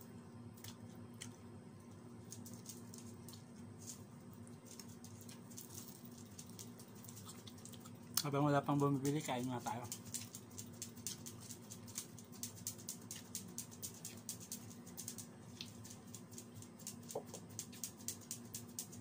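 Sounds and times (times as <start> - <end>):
low steady hum: 0.0 - 19.0
faint rapid clicking: 9.0 - 19.0.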